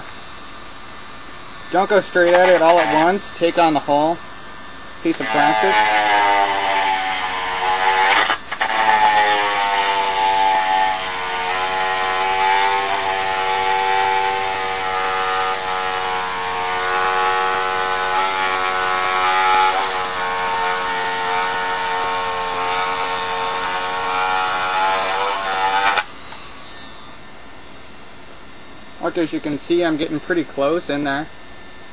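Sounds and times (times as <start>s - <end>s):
rotary tool grinding plastic: 1.6s - 4.1s, 5.0s - 27.3s.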